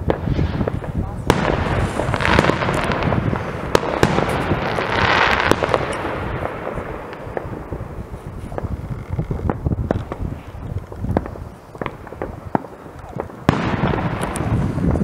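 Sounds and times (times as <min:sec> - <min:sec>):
distant firework bangs: 0:00.0 - 0:15.0
firework cracks: 0:00.0 - 0:15.0
hissing crackle: 0:00.0 - 0:15.0.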